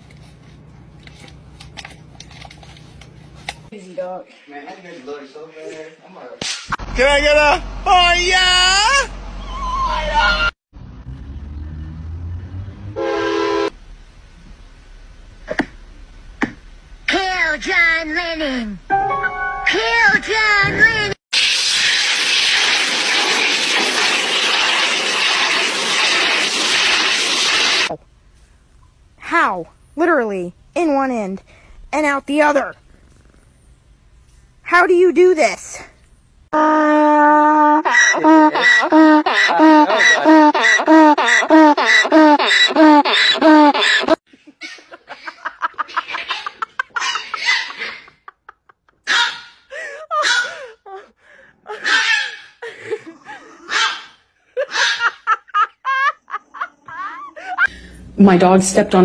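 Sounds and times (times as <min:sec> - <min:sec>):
donkey braying: 0:36.9 - 0:44.2.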